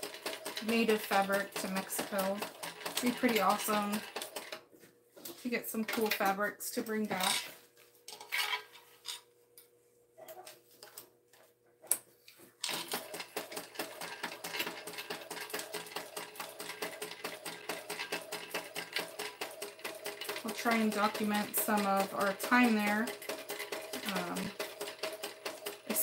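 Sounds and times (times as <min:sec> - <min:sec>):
sewing machine stitching: 0:00.0 - 0:04.6, 0:12.6 - 0:26.0.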